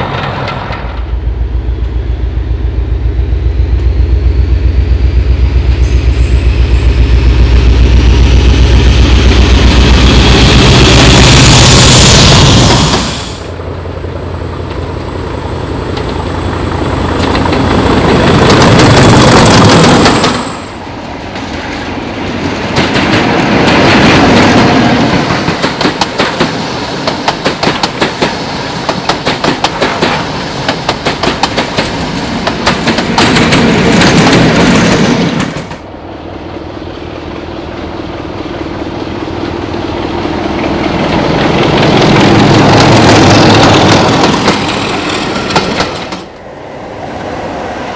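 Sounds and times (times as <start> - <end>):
train wheels clattering over rail joints: 0.0 - 1.1, 15.9 - 20.7, 21.3 - 35.9, 40.6 - 46.3
locomotive engine approaching: 0.0 - 47.9.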